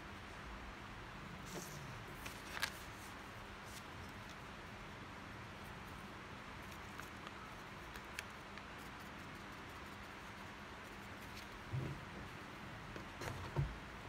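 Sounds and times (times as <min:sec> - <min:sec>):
paper ticks and crinkles: 0:01.5 - 0:04.5, 0:06.6 - 0:11.7.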